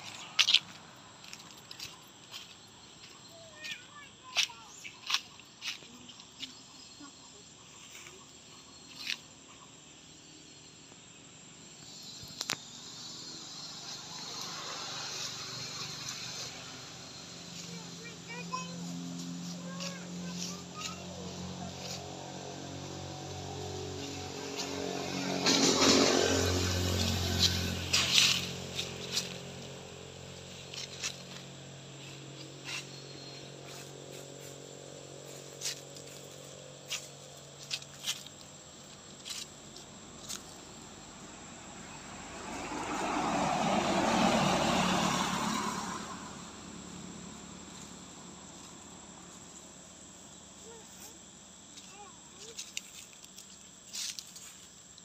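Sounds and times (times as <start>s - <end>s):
dry leaves crunching: 0.0s - 9.2s, 13.8s - 41.0s, 51.7s - 55.0s
high insect buzz: 0.0s - 55.0s.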